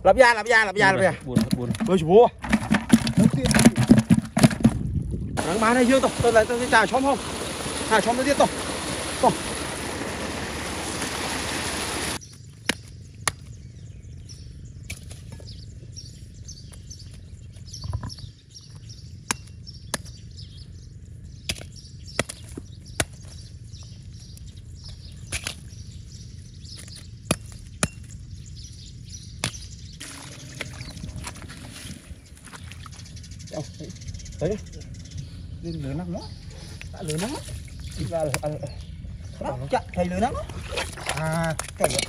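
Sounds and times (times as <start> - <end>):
faint birds chirping: 11.7 - 42.0.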